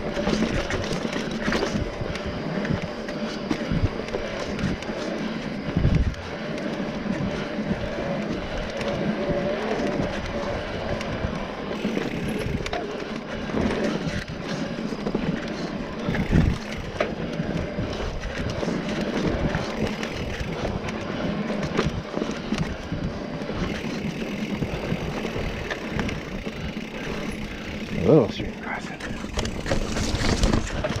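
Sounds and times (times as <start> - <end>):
bike rattling and knocking: 0.0 - 31.0
bike tyre rolling noise: 0.0 - 31.0
wind on microphone: 5.6 - 12.8, 16.0 - 20.9, 29.0 - 31.0.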